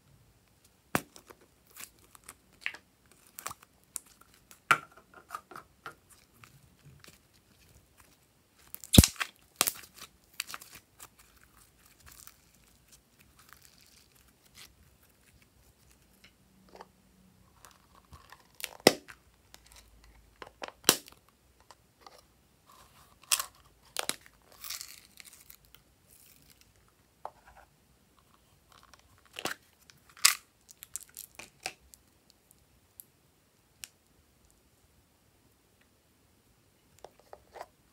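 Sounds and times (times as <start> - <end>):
slime crackling and popping: 6.1 - 16.0, 20.8 - 21.2.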